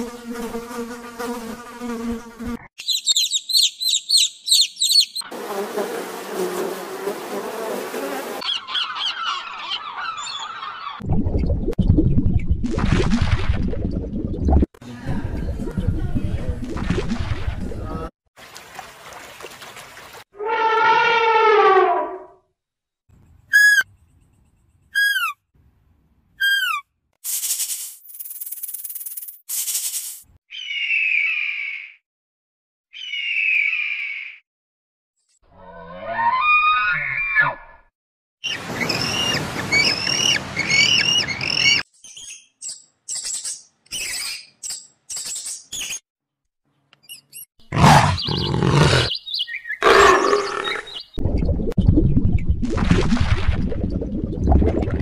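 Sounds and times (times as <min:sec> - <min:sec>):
high pitched animal calls: 0:02.8 - 0:05.2, 0:23.5 - 0:23.9, 0:25.0 - 0:25.4, 0:26.4 - 0:26.8, 0:35.6 - 0:37.6, 0:47.8 - 0:49.2, 0:49.8 - 0:51.0
elephant trumpeting: 0:20.4 - 0:22.2, 0:47.7 - 0:49.1, 0:49.8 - 0:50.8
high squeaks: 0:23.5 - 0:23.9, 0:24.9 - 0:25.4, 0:26.4 - 0:26.8
big cat growling roars: 0:47.7 - 0:49.1, 0:49.8 - 0:50.9.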